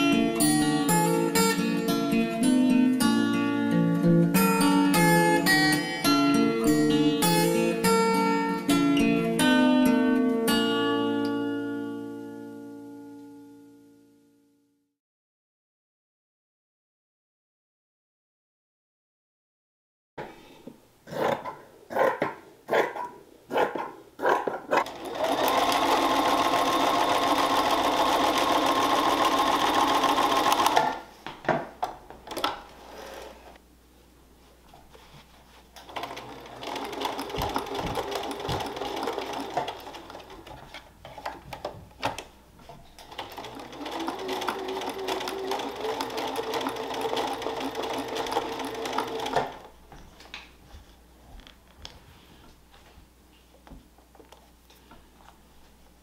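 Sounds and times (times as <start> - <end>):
sewing machine stitching: 24.8 - 31.0, 35.8 - 41.4, 43.0 - 49.7.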